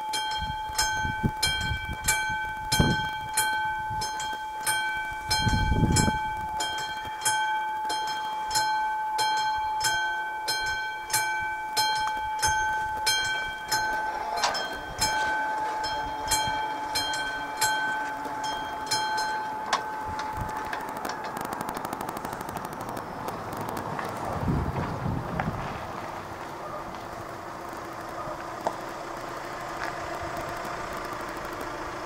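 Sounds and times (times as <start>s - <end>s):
level-crossing warning bell ringing: 0.0s - 24.9s, 27.1s - 32.0s
low rumble: 12.5s - 32.0s.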